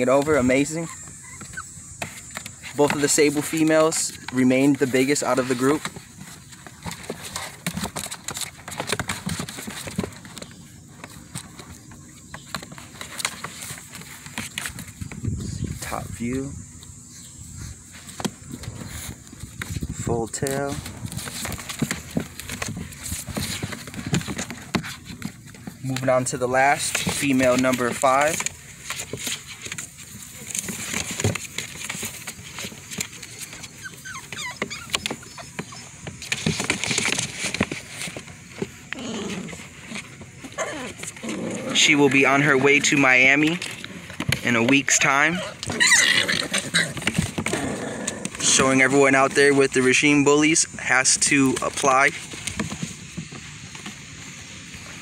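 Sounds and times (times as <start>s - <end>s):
rustling in grass: 0.0s - 34.0s
puppy whimpering: 0.7s - 2.0s, 33.4s - 36.0s, 40.6s - 41.0s, 45.3s - 47.7s.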